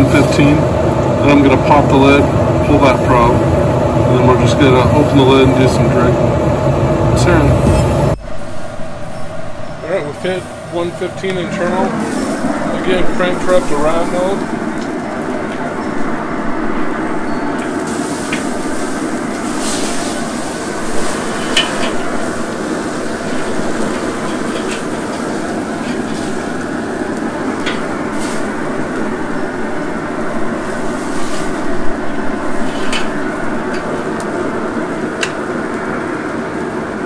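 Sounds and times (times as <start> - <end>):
steaks sizzling on a grill: 17.7 - 35.8.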